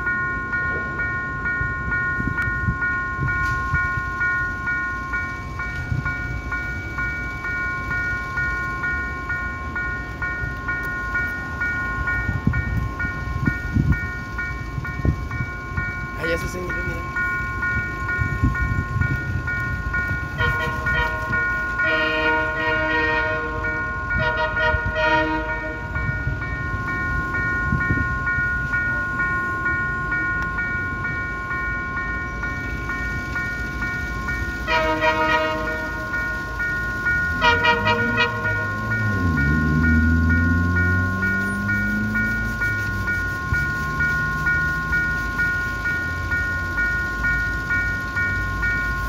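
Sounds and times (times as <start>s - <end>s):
locomotive air horn blasts: 20.3s - 25.9s, 34.6s - 36.1s, 37.4s - 39.3s
steady high electronic tone: 23.4s - 49.0s
diesel engine running: 37.6s - 48.5s.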